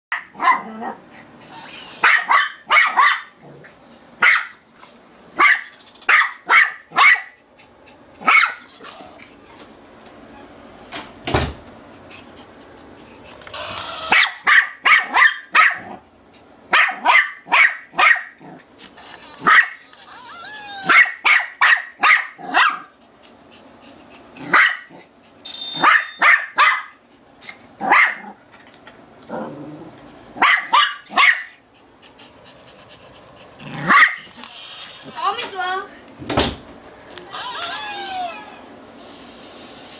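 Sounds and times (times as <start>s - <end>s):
small dog barking: 0.1s - 1.0s, 2.0s - 3.4s, 4.2s - 4.6s, 5.4s - 7.4s, 8.2s - 8.6s, 14.1s - 16.0s, 16.7s - 18.5s, 19.4s - 19.8s, 20.8s - 22.9s, 24.4s - 25.0s, 25.8s - 27.0s, 27.8s - 28.4s, 30.4s - 31.5s, 33.8s - 34.2s.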